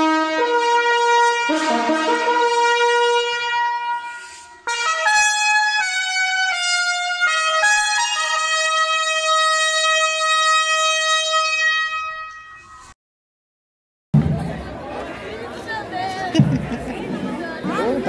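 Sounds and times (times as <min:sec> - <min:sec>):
solo brass instrument playing: 0:00.0 - 0:12.4.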